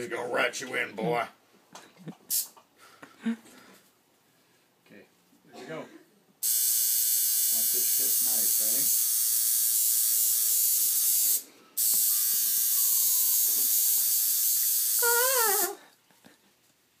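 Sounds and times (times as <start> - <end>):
tattoo machine buzzing: 6.4 - 15.8
short wavering voice: 15.0 - 15.8.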